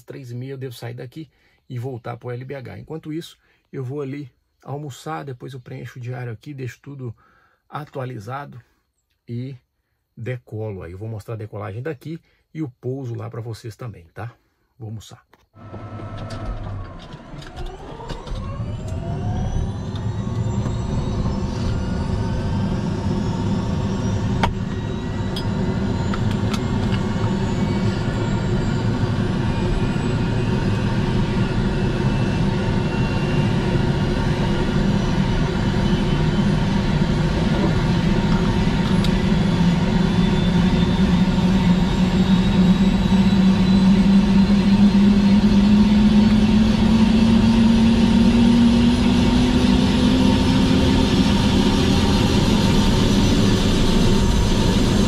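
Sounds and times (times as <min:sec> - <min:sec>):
helicopter turbine whine: 0:14.8 - 0:55.0
low hum rising in pitch: 0:15.6 - 0:55.0.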